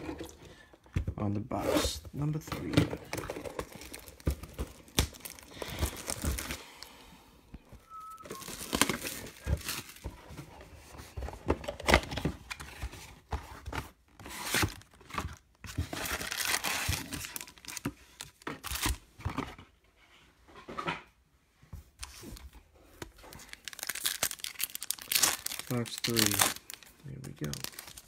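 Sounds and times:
plastic wrapping crinkling and tearing: 3.1s - 6.6s, 8.1s - 10.1s, 14.3s - 19.0s, 23.1s - 28.0s.

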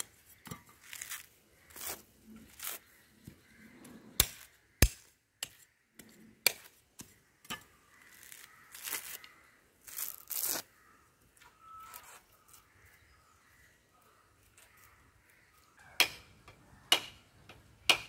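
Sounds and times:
fibres ripping: 0.8s - 2.8s, 8.0s - 10.8s.

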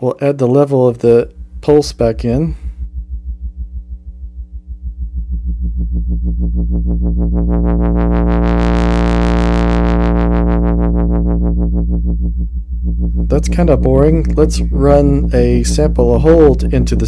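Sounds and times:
wobbling synth pulse wave: 1.0s - 17.0s.

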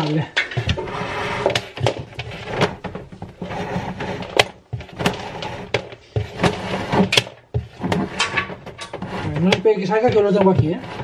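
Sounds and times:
cable scraping against wood panels: 0.0s - 11.0s.

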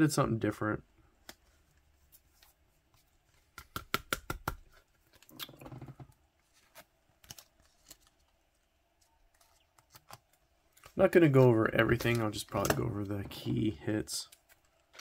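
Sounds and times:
cards clicking and tapping: 3.3s - 6.0s, 9.3s - 11.0s, 11.8s - 13.6s
cards rustling: 4.5s - 15.0s.

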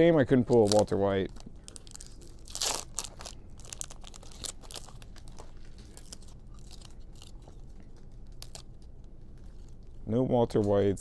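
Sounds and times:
foil wrappers crinkling: 0.0s - 10.0s
cards clicking and rustling: 0.3s - 8.9s.

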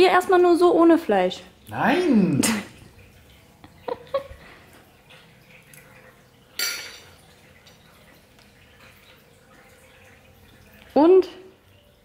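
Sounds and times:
cutlery clinking on dishes: 6.6s - 7.2s.

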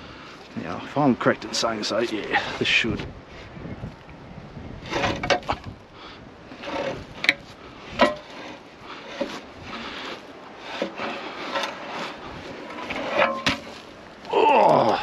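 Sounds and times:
heavy metal scraping: 0.7s - 2.8s, 4.8s - 5.8s, 6.5s - 14.2s.

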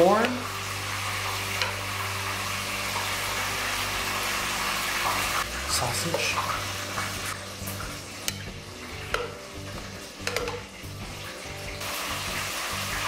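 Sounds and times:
background music with steady beat: 0.0s - 13.0s
metal tongs clicking: 10.2s - 10.6s
sauce hissing on food: 11.8s - 13.0s.

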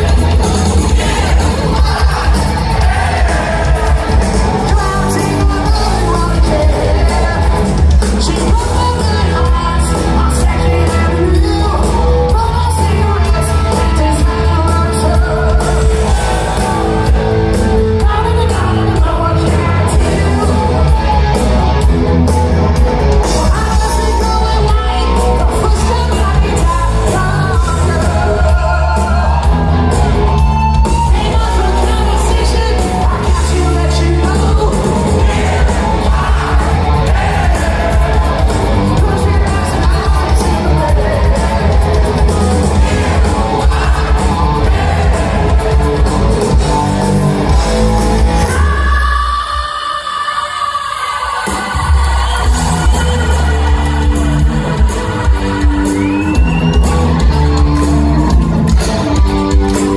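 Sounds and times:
man singing: 0.0s - 16.7s, 17.9s - 21.4s, 23.2s - 29.9s, 30.9s - 45.7s
live hard rock band: 0.0s - 59.9s.

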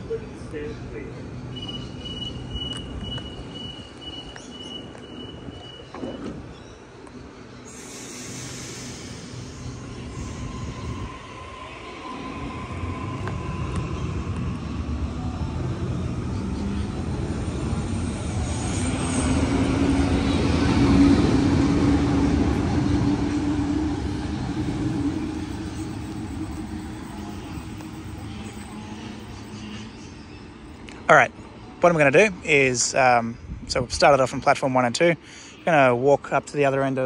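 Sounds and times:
electric train departing: 0.0s - 36.8s.

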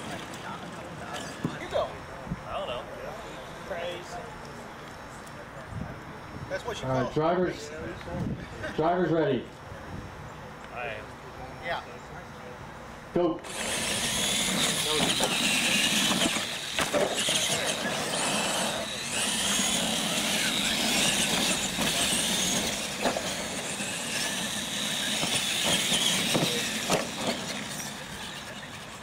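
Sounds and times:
rc truck motor whine: 13.4s - 29.0s
tyres on loose dirt: 13.4s - 29.0s.

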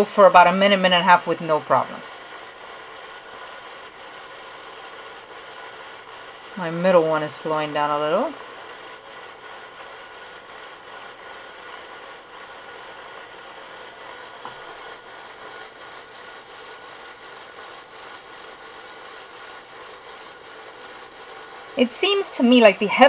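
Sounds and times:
fidget spinners whirring: 0.0s - 23.0s.

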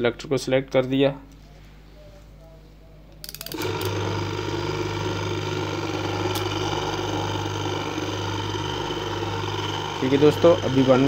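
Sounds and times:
washing machine motor running: 3.5s - 11.0s.

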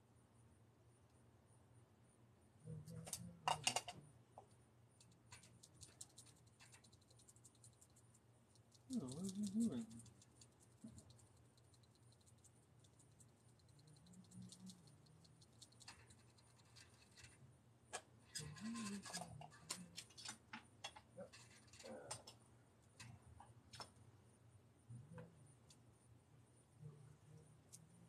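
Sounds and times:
faint handling clicks and scratches: 18.0s - 24.0s.

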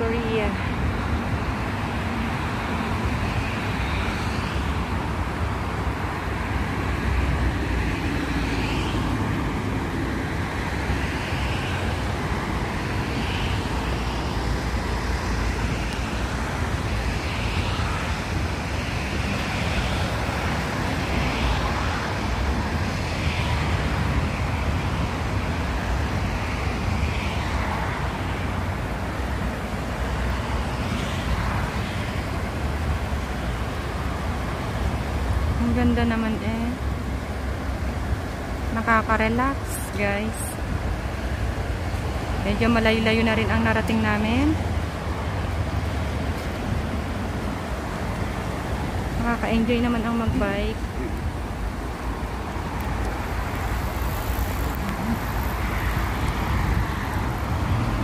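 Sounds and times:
rushing outdoor noise: 0.0s - 58.0s
wind rumble on microphone: 0.0s - 58.0s.

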